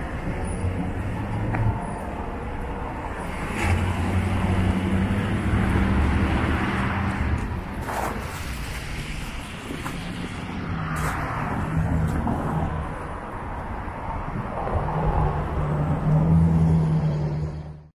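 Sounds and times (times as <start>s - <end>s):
road noise: 0.0s - 17.9s
vehicle engine hum: 0.0s - 17.9s.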